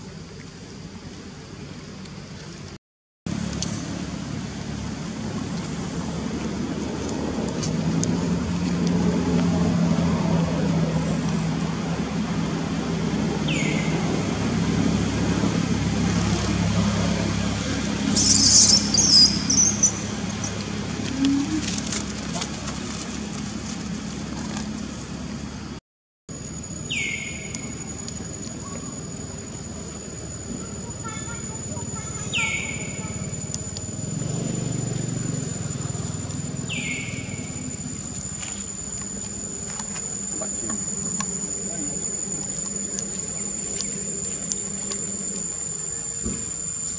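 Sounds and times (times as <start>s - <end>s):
low hum: 0.0s - 46.9s
small engine running: 3.3s - 25.8s, 26.9s - 46.9s
high insect drone: 3.3s - 46.9s
monkeys squealing: 18.1s - 20.1s.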